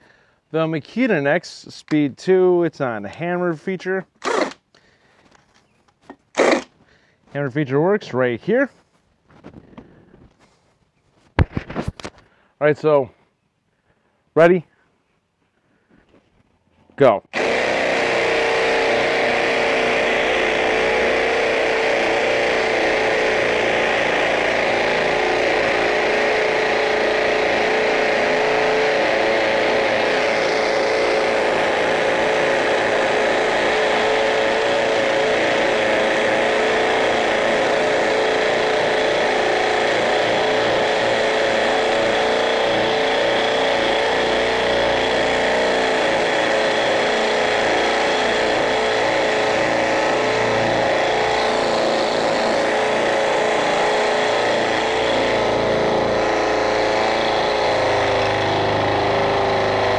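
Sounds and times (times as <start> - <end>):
hammer drill boring into concrete: 4.0 - 4.8, 6.1 - 6.8, 17.2 - 59.9.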